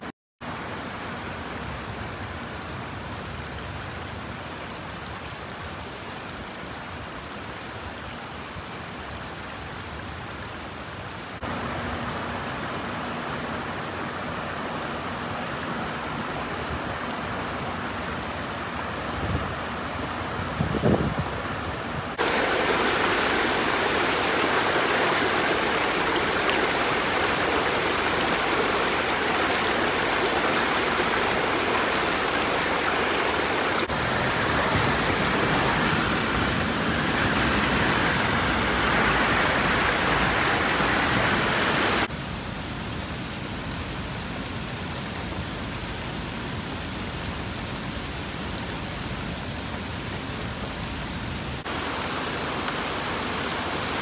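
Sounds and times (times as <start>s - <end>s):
floodwater rushing: 0.0s - 54.0s
heavy rain falling: 0.0s - 54.0s.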